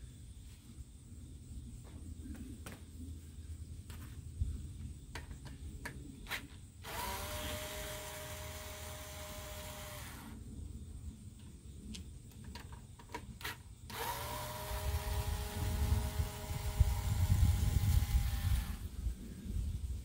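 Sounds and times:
cordless drill spinning: 0:06.8 - 0:10.4, 0:13.9 - 0:18.9.

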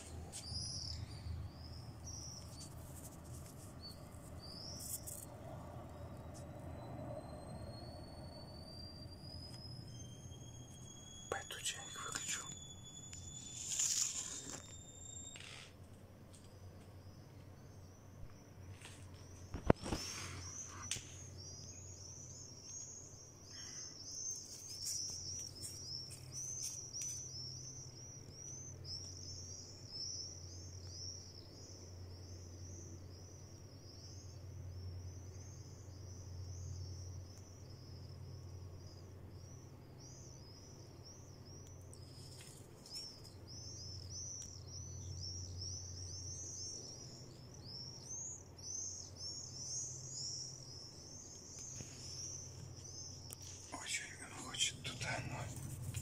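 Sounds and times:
low steady hum: 0:00.0 - 0:56.0
swifts screaming: 0:53.7 - 0:55.9.

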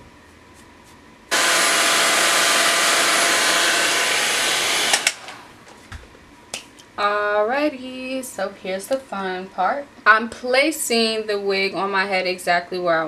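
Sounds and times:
hair dryer blowing: 0:01.3 - 0:05.6.

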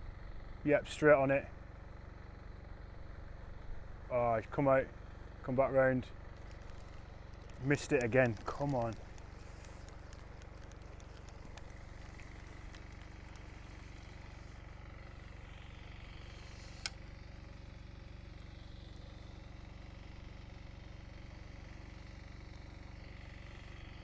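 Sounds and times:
steady low hum: 0:00.0 - 0:24.0
sharp click: 0:16.4 - 0:17.0.

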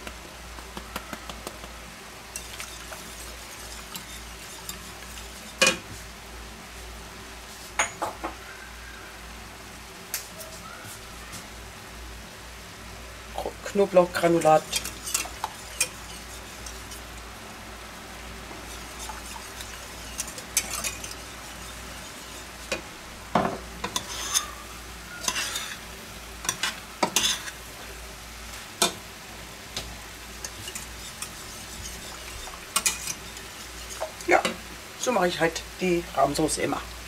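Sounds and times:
pans sizzling: 0:00.0 - 0:08.3, 0:13.4 - 0:37.0
whisk scraping metal pot: 0:02.3 - 0:06.0, 0:14.0 - 0:17.2, 0:18.4 - 0:22.9, 0:23.8 - 0:25.8, 0:26.5 - 0:27.6, 0:30.3 - 0:34.5.

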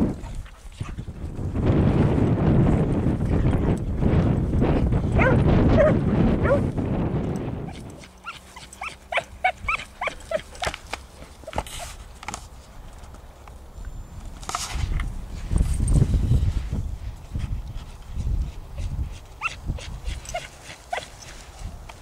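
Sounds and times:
wind: 0:00.0 - 0:22.0
hound barking and yelping: 0:05.2 - 0:06.7, 0:07.6 - 0:11.9, 0:19.4 - 0:21.4.

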